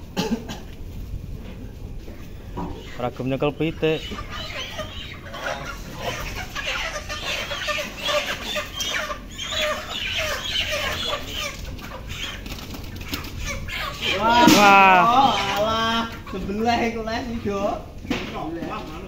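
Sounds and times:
chickens squawking and clucking: 0.6 - 19.0
wings flapping: 10.9 - 14.6.

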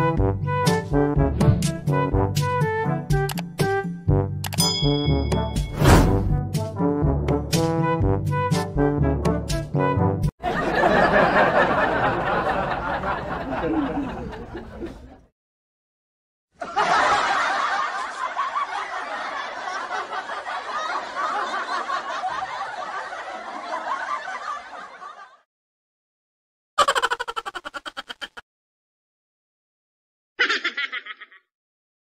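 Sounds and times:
people laughing: 10.4 - 15.3, 16.6 - 25.4, 26.8 - 28.4, 30.4 - 31.4.

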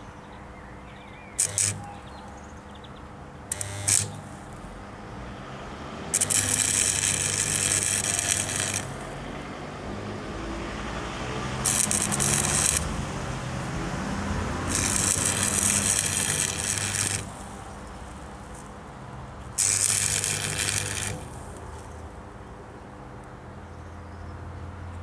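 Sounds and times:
arc welder crackling and hissing: 1.4 - 2.1, 3.5 - 4.8, 6.1 - 9.3, 11.5 - 22.1.

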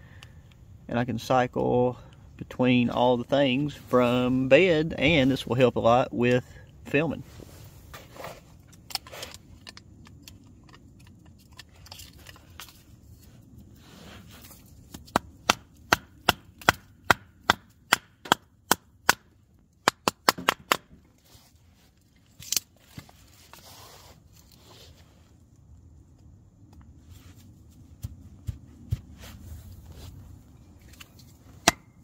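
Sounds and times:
hatchet chopping kindling: 14.9 - 20.9, 31.6 - 32.0.

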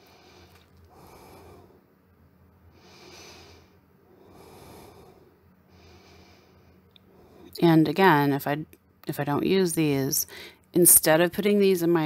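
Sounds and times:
person breathing softly: 0.0 - 1.9, 2.7 - 7.6, 10.3 - 10.6.

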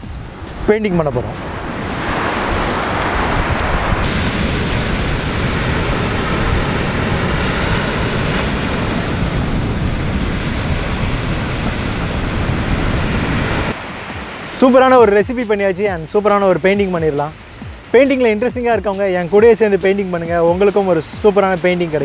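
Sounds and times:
wind rumbling on microphone: 0.0 - 14.4
surf breaking on sandy beach: 0.0 - 22.0.

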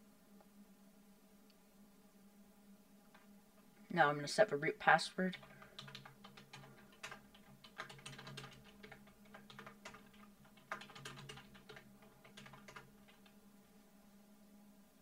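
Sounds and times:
faint keyboard typing: 3.0 - 3.7, 5.2 - 13.4.

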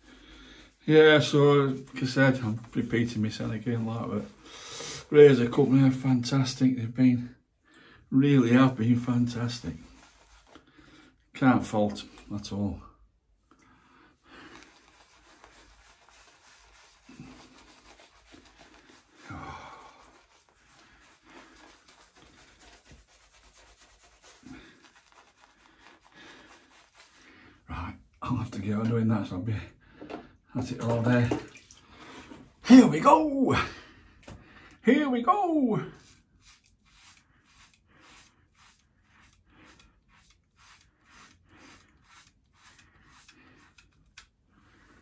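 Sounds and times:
shaving brush scratching skin: 8.6 - 10.7, 14.4 - 27.4, 35.9 - 45.0
razor scraping stubble: 36.0 - 45.0.

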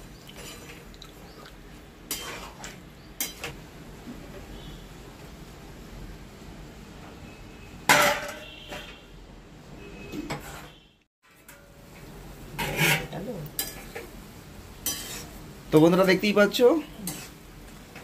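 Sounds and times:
metal spatula scraping a pan: 0.4 - 0.8, 2.1 - 3.6, 10.0 - 11.8, 12.5 - 14.2, 14.8 - 15.4, 17.0 - 17.5.

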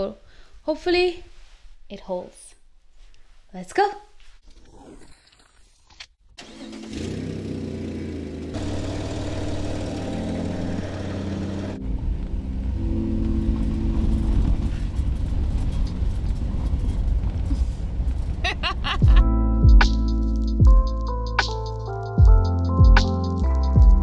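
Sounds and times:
car engine and road rumble: 6.4 - 19.2
background music chords: 9.0 - 15.0, 19.1 - 24.0.

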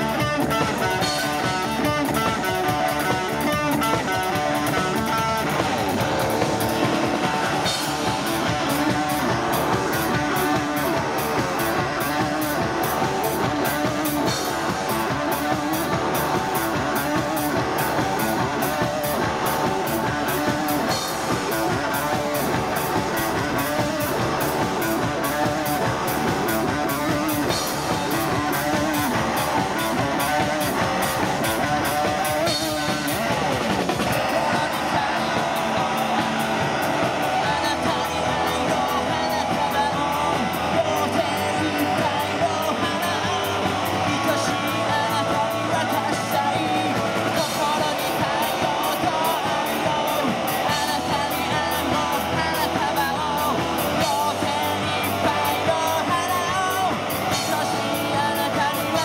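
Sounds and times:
live rock band playing: 0.0 - 59.0
steady cymbal beat: 0.0 - 59.0.

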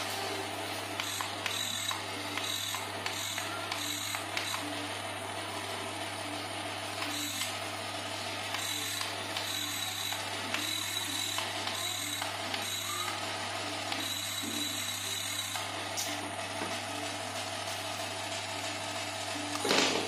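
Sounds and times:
small motors rattling whir: 0.0 - 5.5, 8.4 - 17.1.

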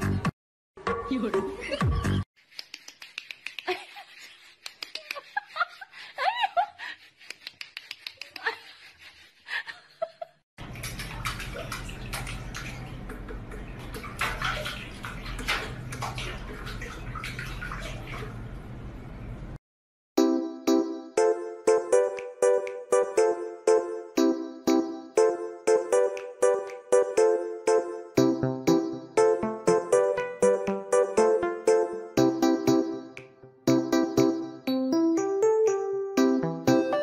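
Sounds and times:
water splashing: 10.6 - 18.6.

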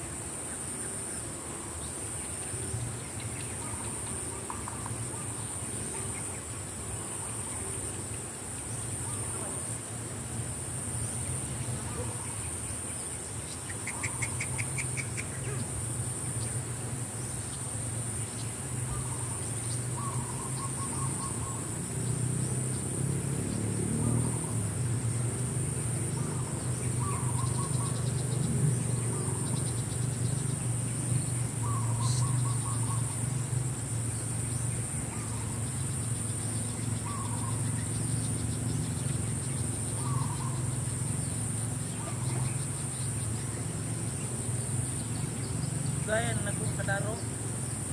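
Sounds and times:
high-pitched insect drone: 8.7 - 47.9
rapid bird trill: 11.6 - 16.6, 24.0 - 47.9.

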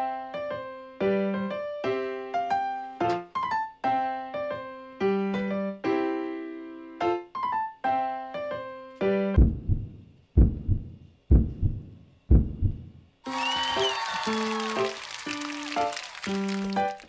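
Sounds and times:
light piano music: 0.0 - 9.5, 13.3 - 17.0
heartbeat thumps: 9.4 - 13.0.

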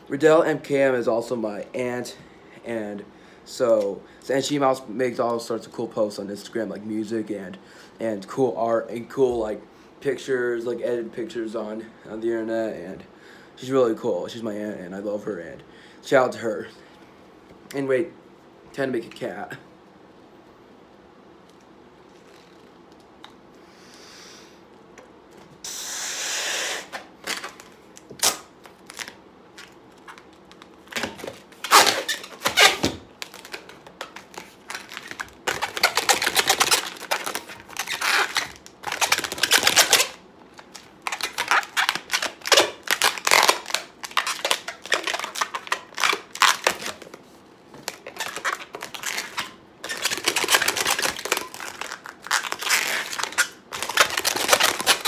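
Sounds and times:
balloon squeaking and rubbing: 25.6 - 27.5, 31.0 - 40.2, 41.0 - 47.2, 47.9 - 55.0.

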